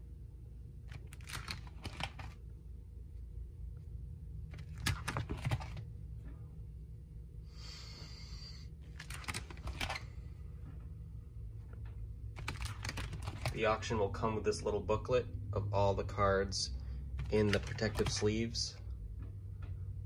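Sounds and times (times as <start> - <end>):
low steady hum: 0.0 - 20.0
plastic sleeves crinkling: 0.9 - 2.4.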